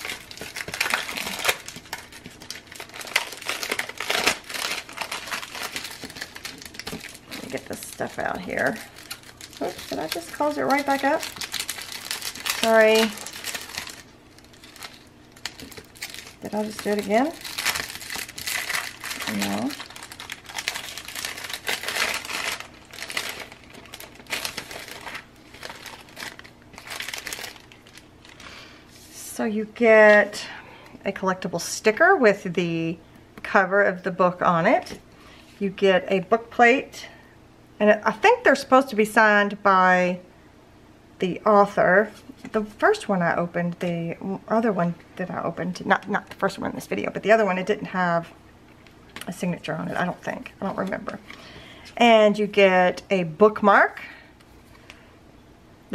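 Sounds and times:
plastic bag crinkling: 0:00.0 - 0:28.6.

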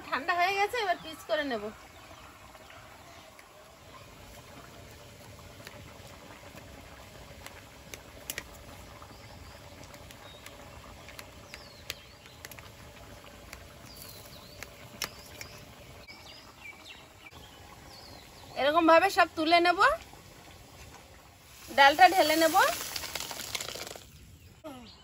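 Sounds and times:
faint birds chirping: 0:08.8 - 0:19.6, 0:24.0 - 0:25.0.

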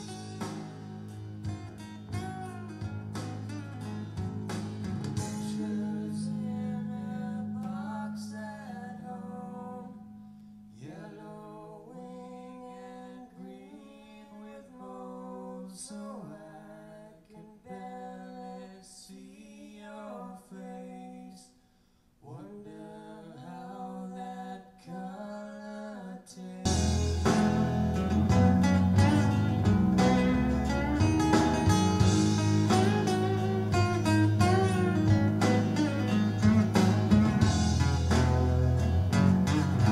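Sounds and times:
acoustic guitar music: 0:00.0 - 0:11.0, 0:26.7 - 0:39.9
person singing: 0:05.2 - 0:10.1.

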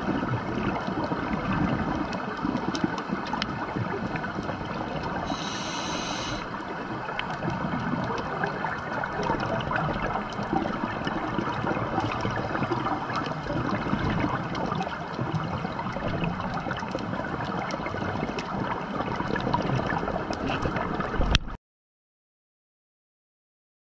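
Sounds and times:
underwater rush of water: 0:00.0 - 0:21.6
small crackling clicks: 0:02.0 - 0:06.5.

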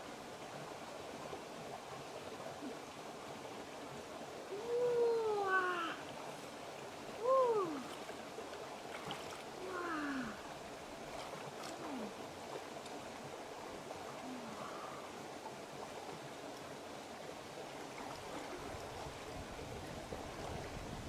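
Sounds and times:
flowing river water: 0:00.0 - 0:21.0
animal calling with falling pitch: 0:04.5 - 0:06.0, 0:07.2 - 0:07.8.

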